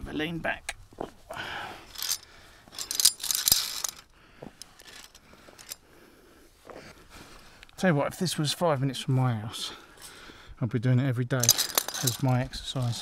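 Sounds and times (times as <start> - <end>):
carabiners clinking on steel cable: 1.8 - 5.8, 11.4 - 13.0.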